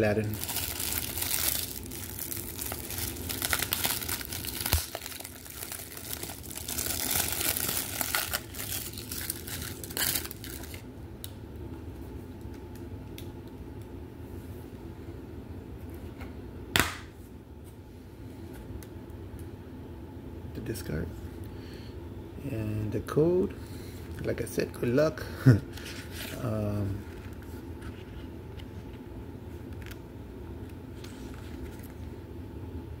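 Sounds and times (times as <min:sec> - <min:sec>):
plastic case crinkling: 0:00.2 - 0:10.8.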